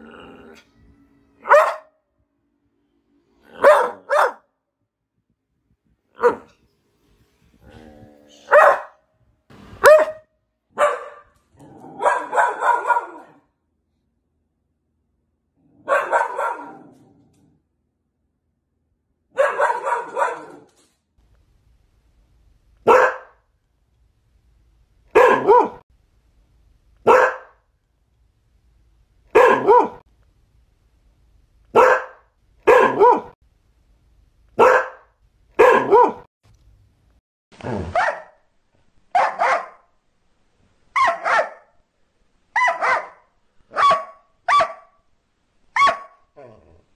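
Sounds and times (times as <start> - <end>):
dog barking: 1.4 - 2.0, 3.5 - 4.5, 6.2 - 6.6, 8.5 - 9.0, 9.8 - 13.5, 15.8 - 16.9, 19.3 - 20.7, 22.8 - 23.4, 25.1 - 25.8, 27.0 - 27.6, 29.3 - 30.0, 31.7 - 33.4, 34.6 - 36.3, 37.7 - 38.4, 39.1 - 39.9, 40.9 - 41.8, 42.5 - 45.0, 45.7 - 46.5.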